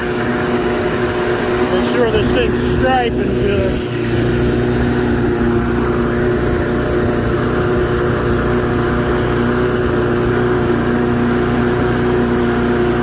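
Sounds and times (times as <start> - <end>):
lawn mower engine running: 0.0 - 13.0.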